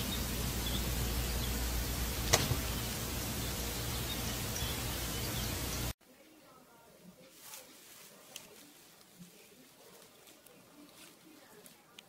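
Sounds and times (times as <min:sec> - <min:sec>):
low hum: 0:00.0 - 0:05.9
steady hiss: 0:00.0 - 0:06.0.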